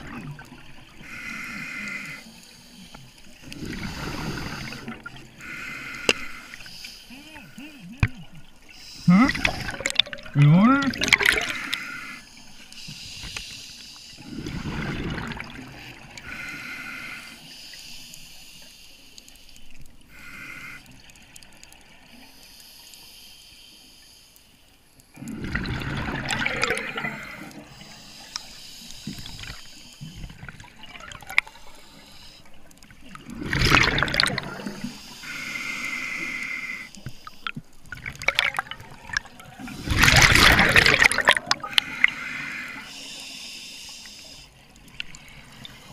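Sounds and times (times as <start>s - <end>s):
exhaled bubbles rushing: 3.4s - 5.4s, 9.1s - 11.6s, 14.2s - 16.2s, 25.2s - 27.7s, 30.2s - 31.6s, 32.9s - 34.9s, 37.8s - 41.9s
regulator inhalations hissing: 11.5s - 14.2s, 26.9s - 30.3s, 31.4s - 32.6s, 34.5s - 37.5s, 41.6s - 44.6s.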